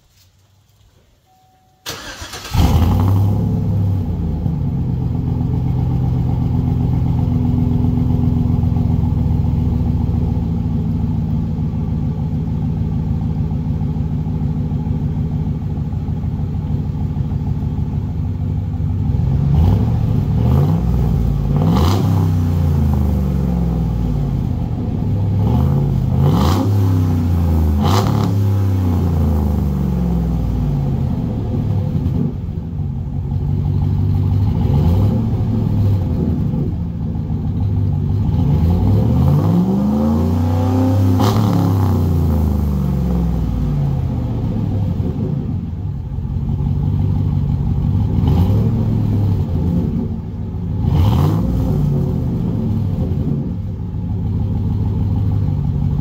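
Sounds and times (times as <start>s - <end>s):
truck engine starting: 1.8s - 56.0s
truck engine revving: 1.9s - 4.4s, 19.2s - 24.5s, 25.2s - 32.5s, 34.2s - 36.8s, 38.2s - 45.5s, 48.0s - 53.7s
truck engine idling: 3.5s - 20.4s, 51.9s - 56.0s.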